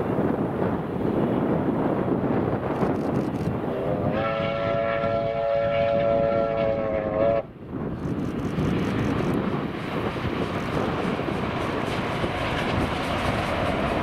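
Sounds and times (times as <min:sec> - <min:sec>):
train running past: 0:00.0 - 0:14.0
steam locomotive whistle: 0:03.8 - 0:07.5.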